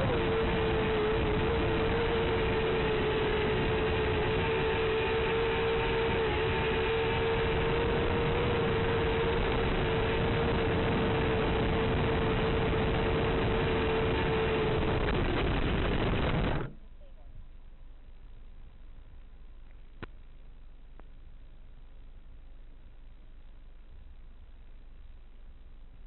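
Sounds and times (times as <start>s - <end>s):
static hiss: 0.0s - 17.0s
constant low hum: 0.0s - 26.0s.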